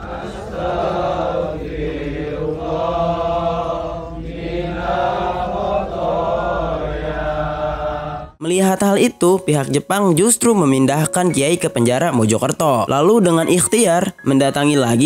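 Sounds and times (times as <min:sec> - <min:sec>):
men chanting together: 0:00.0 - 0:08.4.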